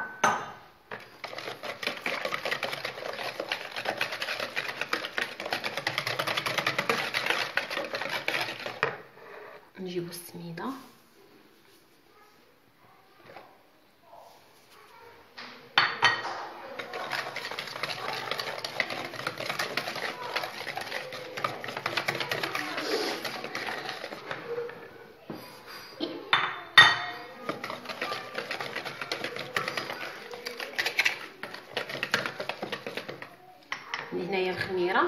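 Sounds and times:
whisk scraping a ceramic bowl: 0.9s - 9.6s, 16.6s - 25.0s, 27.0s - 33.9s.

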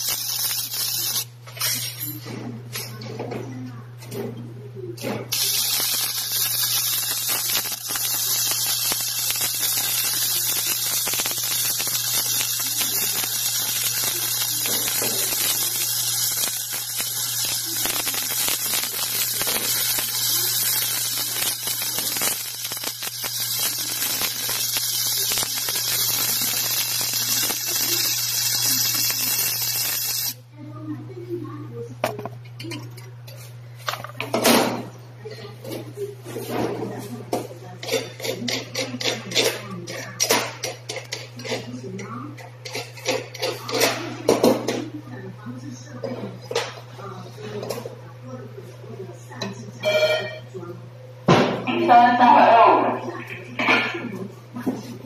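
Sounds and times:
welding arc crackling and sizzling: 0.0s - 2.1s, 5.3s - 30.5s, 37.8s - 44.8s.

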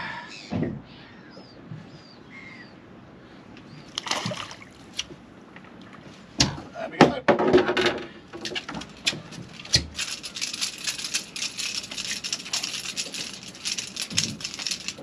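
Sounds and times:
fish splashing out of water: 4.0s - 5.0s
fish flapping and rattling: 8.4s - 15.0s.

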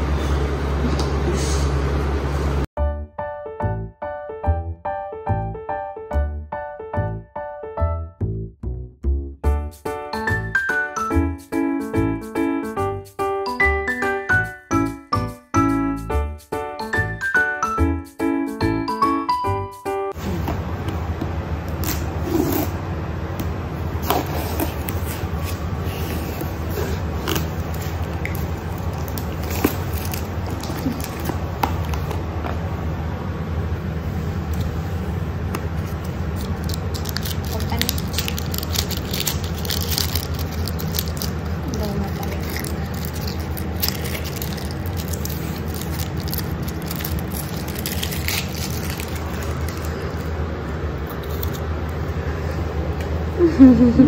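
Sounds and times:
steady low hum: 20.1s - 54.0s
foil wrapper crinkling: 26.6s - 32.2s, 35.8s - 50.3s.

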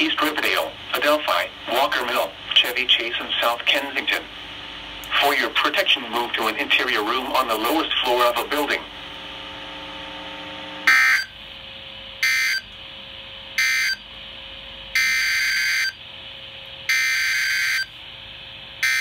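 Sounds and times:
low radio hum: 0.0s - 12.1s.

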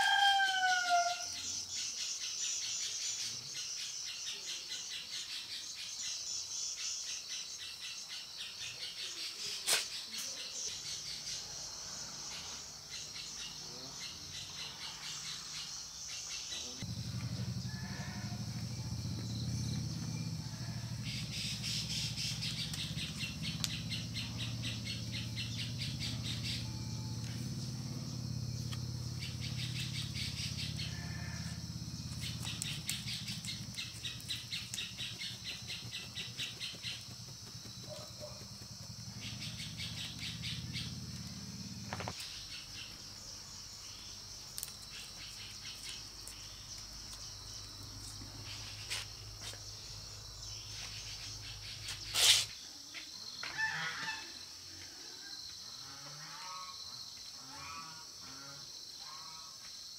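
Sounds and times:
insects calling: 0.0s - 59.9s
birds calling: 12.3s - 52.6s
fast pulsing chirps: 31.8s - 41.8s.

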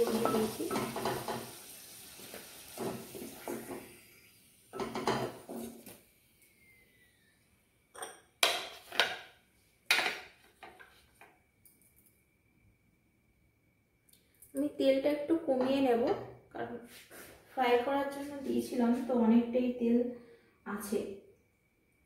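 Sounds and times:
oil sizzling: 0.0s - 6.0s.

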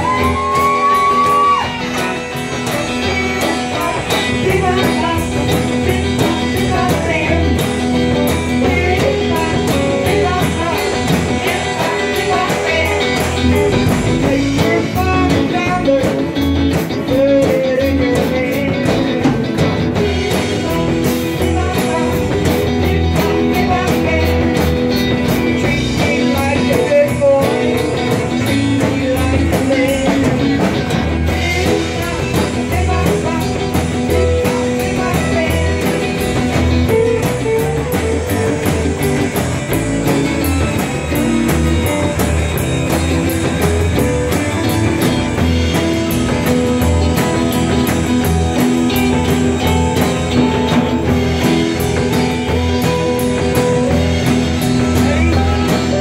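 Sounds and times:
woman singing into a microphone: 0.0s - 24.8s, 25.4s - 38.9s
live rock band playing: 0.0s - 56.0s.

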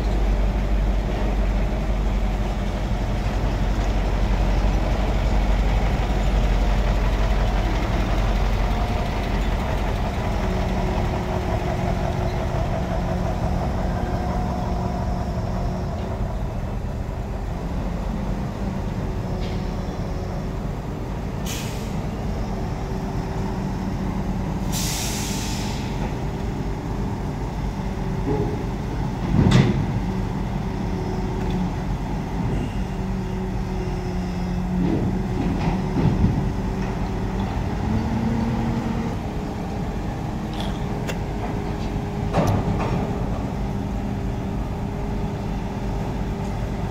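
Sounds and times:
heavy diesel engines running: 0.0s - 46.9s
air hissing: 24.6s - 26.0s.

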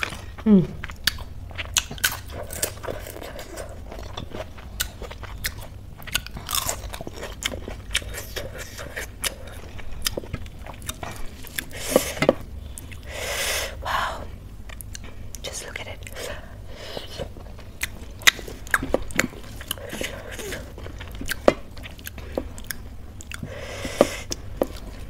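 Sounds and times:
chewing crisp wafer: 0.0s - 13.1s.

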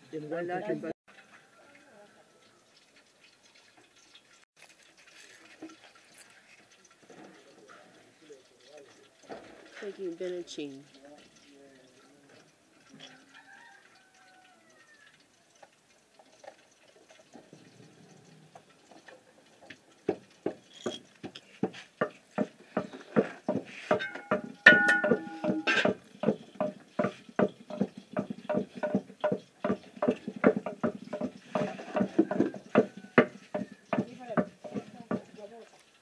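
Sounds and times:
wooden pestle pounding in mortar: 21.6s - 35.4s.

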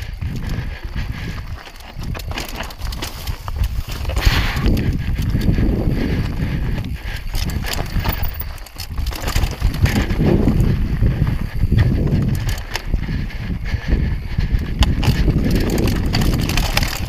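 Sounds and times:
bike clattering: 0.0s - 17.0s
wind on microphone: 0.0s - 17.0s
tyres crunching over stones: 1.3s - 4.8s, 7.2s - 10.7s, 14.9s - 17.0s.

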